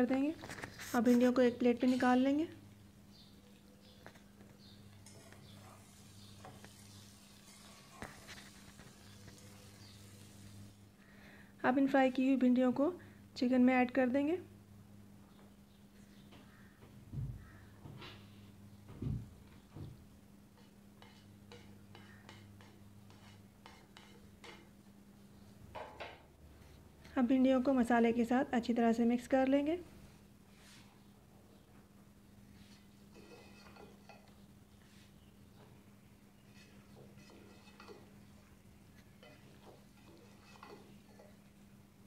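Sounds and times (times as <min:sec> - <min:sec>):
spoon stirring in metal pan: 0:20.6 - 0:24.7, 0:32.7 - 0:34.5, 0:36.4 - 0:41.7.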